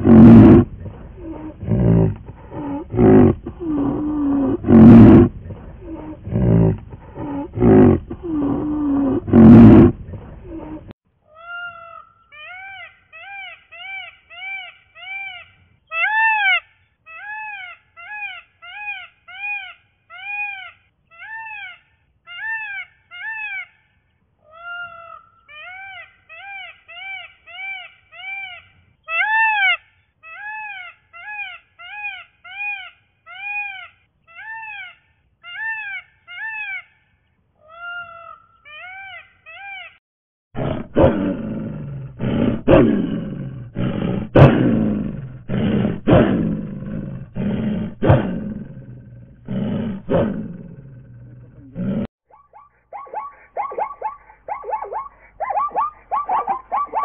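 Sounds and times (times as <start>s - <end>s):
peacock calling: 11.3s - 40.0s, 52.3s - 57.0s.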